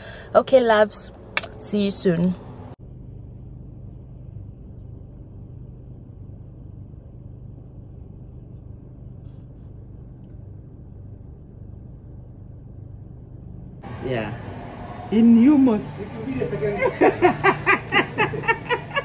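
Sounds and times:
car engine humming: 9.8s - 19.0s.

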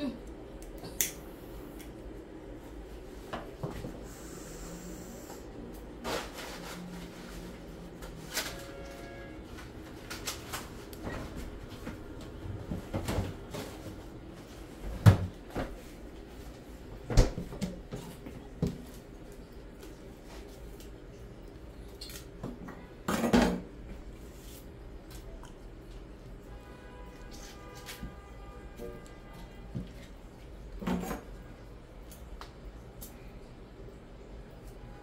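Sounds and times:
cookware and cupboards clattering: 22.6s - 23.7s, 30.8s - 31.3s.

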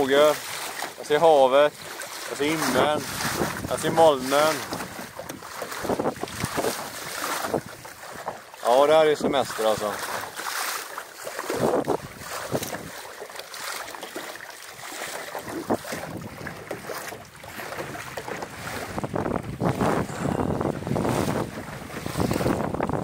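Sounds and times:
water rushing along a hull: 0.0s - 23.0s
wind buffeting microphone: 1.6s - 8.4s, 11.4s - 13.1s, 14.8s - 23.0s.

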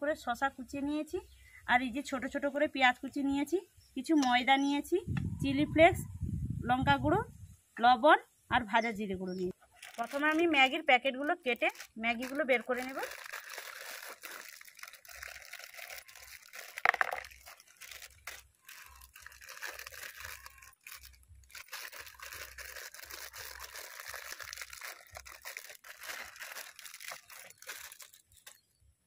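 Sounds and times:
plastic wrappers crinkling: 9.6s - 28.8s.

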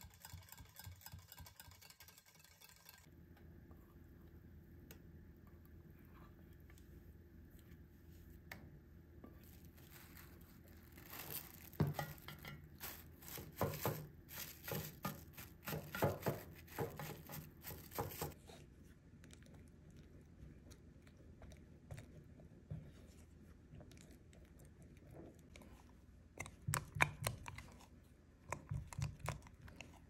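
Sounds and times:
crinkling and rustling: 9.3s - 18.5s.

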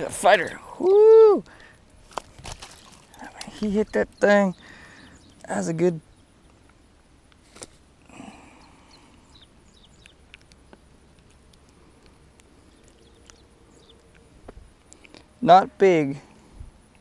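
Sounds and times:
faint outdoor ambience: 0.0s - 17.0s
short rustle of fish handling: 2.0s - 3.2s.

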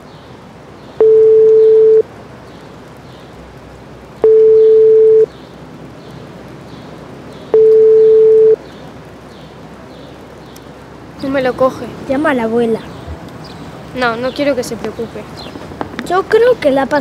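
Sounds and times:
telephone ringback tone: 1.0s - 2.0s, 4.2s - 5.3s, 7.6s - 8.6s.

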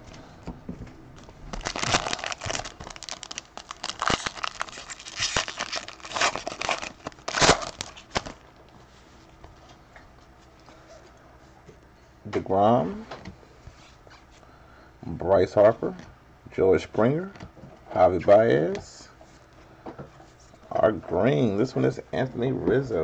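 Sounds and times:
wrapper tearing and crinkling: 1.5s - 8.4s.

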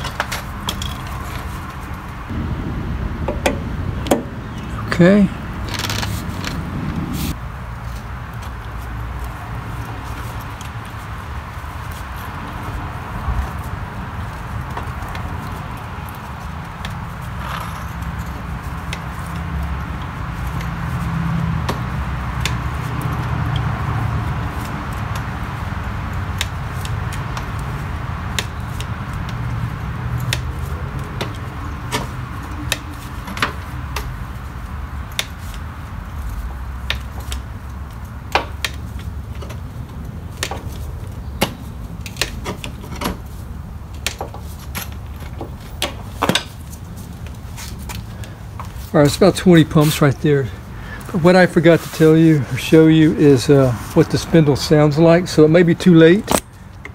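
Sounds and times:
steady low rumble: 0.0s - 17.3s.

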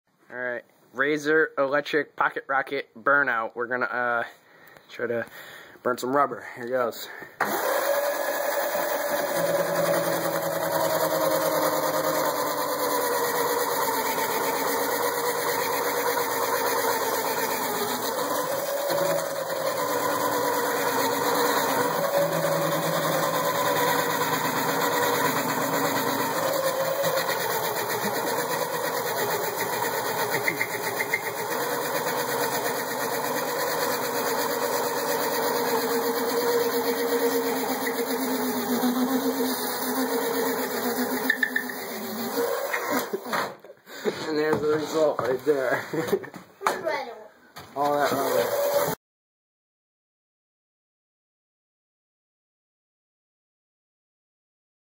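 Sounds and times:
electric mini bike motor whine: 7.4s - 43.5s, 47.8s - 49.0s.

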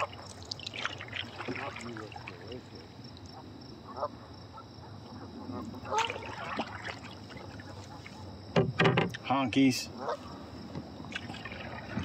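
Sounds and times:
water trickling and dripping: 0.0s - 3.4s.

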